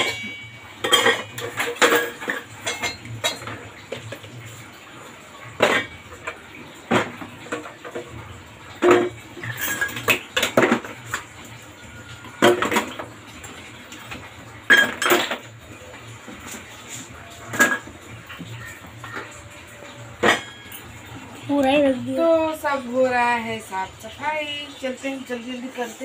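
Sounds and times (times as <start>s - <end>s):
bottles and jars clinking: 0.0s - 4.4s, 5.6s - 8.2s, 8.8s - 11.3s, 14.7s - 15.6s, 16.3s - 21.5s.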